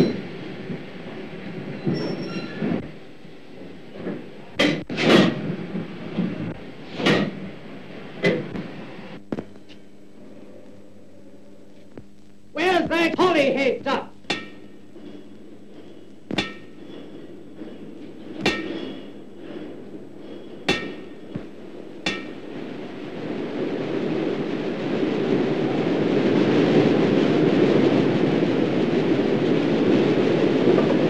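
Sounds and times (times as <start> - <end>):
steam locomotive rumbling: 0.0 - 9.3, 12.6 - 31.0
metallic clangs: 14.2 - 14.8, 16.3 - 17.1, 18.4 - 19.1, 20.7 - 21.2.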